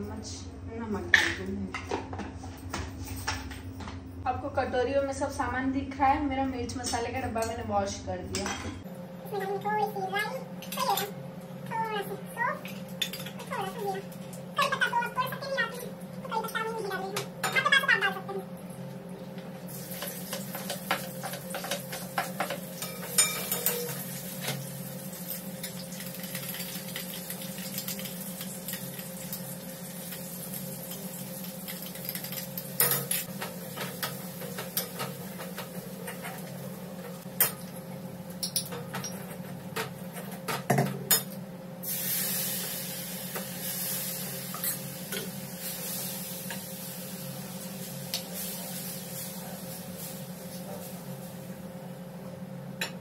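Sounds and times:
steady low hum: 0.0 - 53.0
hot pan sizzling: 9.4 - 39.2, 41.8 - 51.6.

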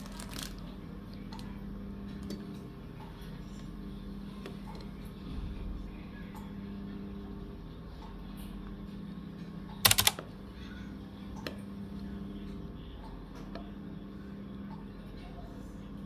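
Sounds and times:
steady low hum: 0.0 - 16.0
rattle of sharp clicks: 9.9 - 10.2.

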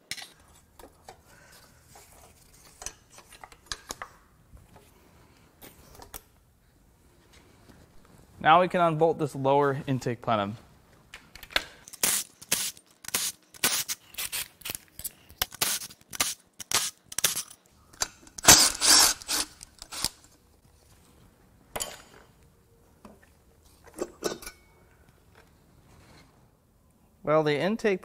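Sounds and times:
cordless ratchet bursts: 18.4 - 20.2.

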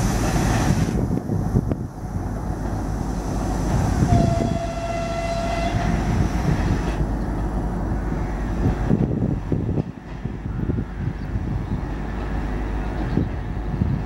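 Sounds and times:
diesel locomotive engine: 0.0 - 14.0
train horn: 4.0 - 6.1.

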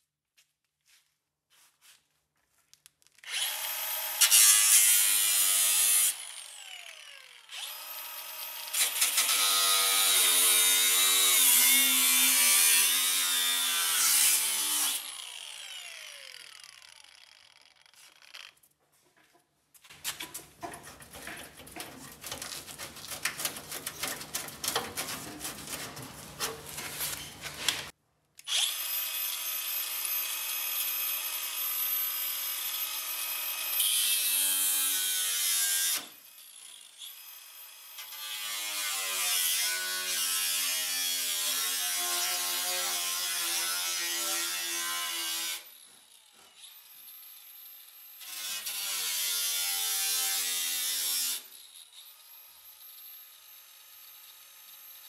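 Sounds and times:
angle grinder grinding steel: 3.2 - 18.7, 28.5 - 55.0
harsh crackling scraping: 20.9 - 27.9.

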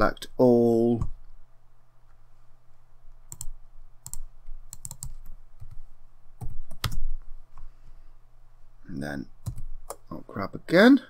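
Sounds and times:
keyboard keys pressed: 3.3 - 5.8.

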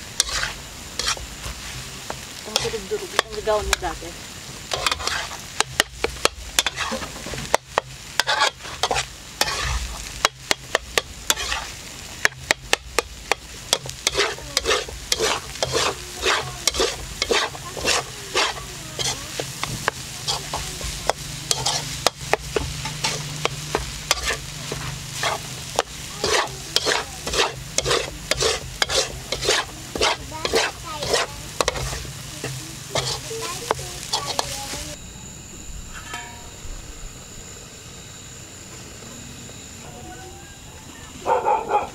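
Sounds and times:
metal utensil scraping a wok: 0.0 - 4.0, 4.6 - 35.0, 35.9 - 36.6
rice sizzling: 0.0 - 41.9.

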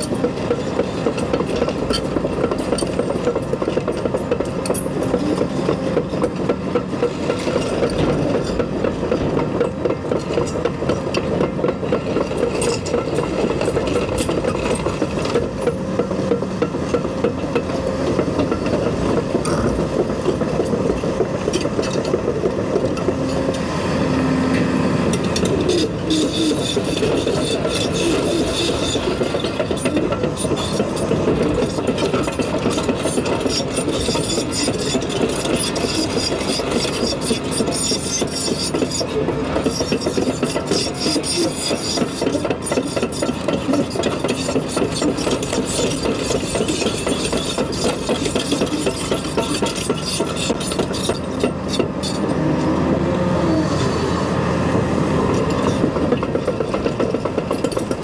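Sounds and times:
excavator engine and hydraulics: 0.0 - 58.0.

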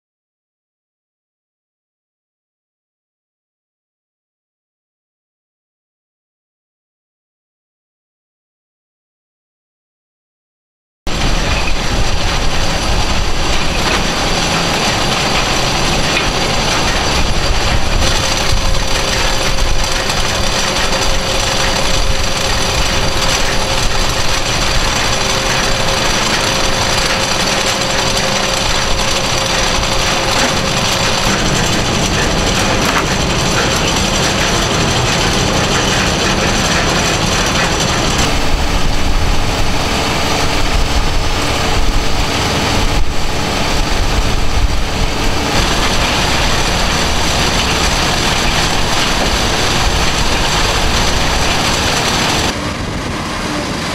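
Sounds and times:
conveyor machinery running: 11.1 - 53.9.

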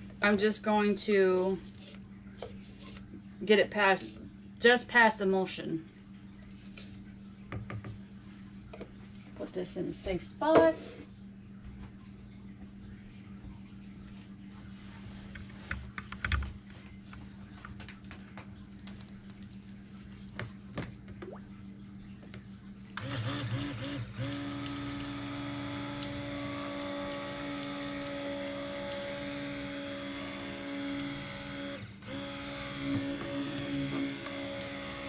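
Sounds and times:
stick blender whine: 23.0 - 35.0.

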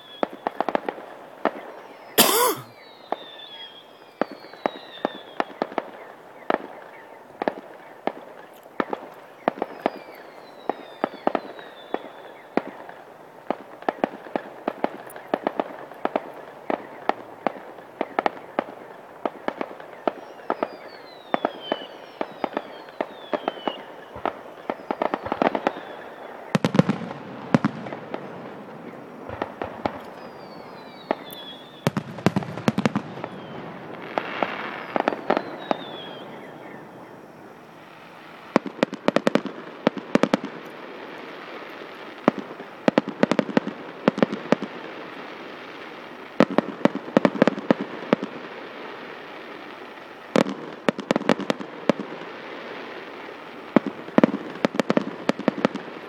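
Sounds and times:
fireworks falling whistles: 0.0 - 56.0
fireworks crackling: 4.2 - 56.0
fireworks bangs: 21.6 - 45.4.

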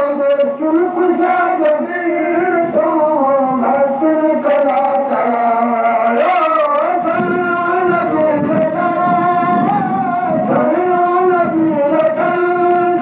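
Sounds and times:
person singing devotional song: 0.0 - 13.0.

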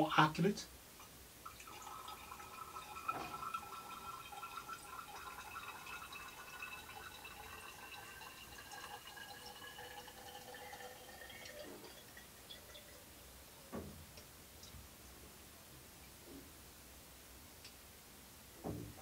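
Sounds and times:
water trickling into glass flask: 1.4 - 13.4.

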